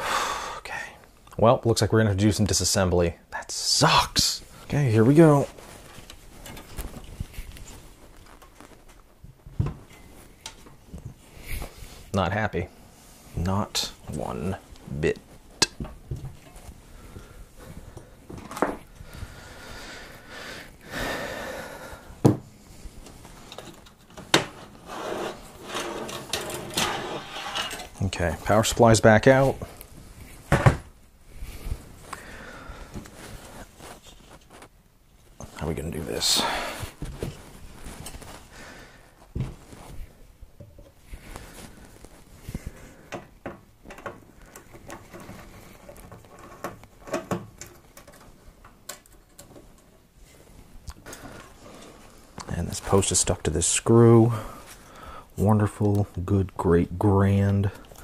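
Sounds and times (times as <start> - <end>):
rustling and scraping: 4.5 - 12.2, 12.8 - 20.1, 22.5 - 56.4.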